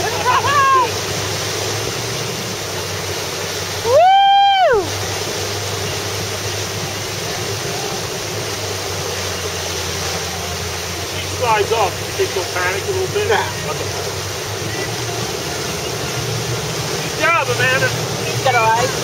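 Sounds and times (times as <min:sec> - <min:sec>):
person cheering: 0:00.0 - 0:01.0, 0:03.8 - 0:04.9
low engine hum: 0:00.0 - 0:19.0
water rushing: 0:00.0 - 0:19.0.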